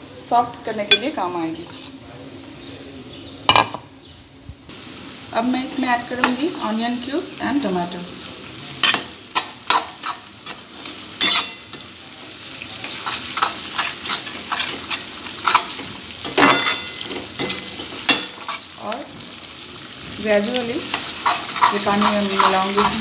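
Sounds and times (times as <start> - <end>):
vegetables sizzling in hot oil: 0.0 - 4.0, 4.7 - 23.0
metal spatula scraping pan: 8.8 - 11.8, 12.8 - 18.7, 20.8 - 23.0.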